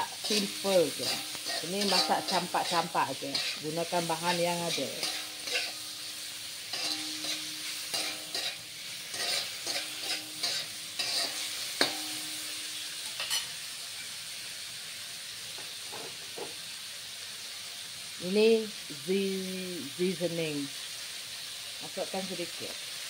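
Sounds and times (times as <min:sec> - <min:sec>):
metal spatula scraping wok: 0:00.0 - 0:14.2
frying sizzle: 0:00.0 - 0:23.0
spatula clack: 0:01.0 - 0:03.6, 0:04.7 - 0:05.8, 0:06.7 - 0:12.2.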